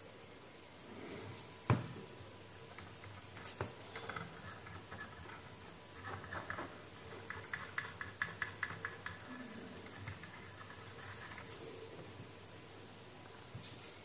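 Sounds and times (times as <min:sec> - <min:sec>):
stick scratching circuit board: 0:02.8 - 0:11.7.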